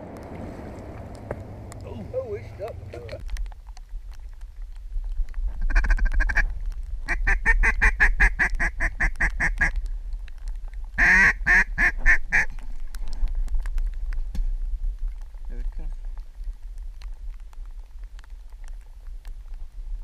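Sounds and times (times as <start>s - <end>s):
low wind rumble on microphone: 0.0s - 20.0s
duck quacking: 11.0s - 12.5s.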